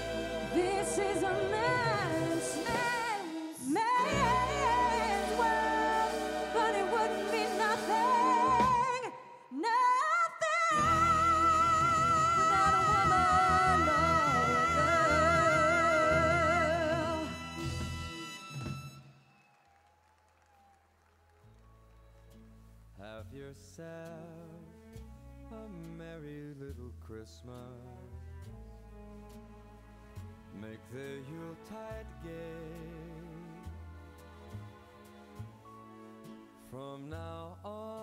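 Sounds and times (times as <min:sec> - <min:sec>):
live band music: 0:00.0 - 0:09.2, 0:10.8 - 0:19.1
wordless singing with vibrato: 0:00.0 - 0:17.6.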